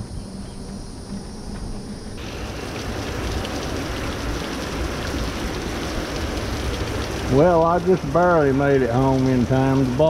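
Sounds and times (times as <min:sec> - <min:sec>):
heavy rain pouring: 0:02.2 - 0:10.0.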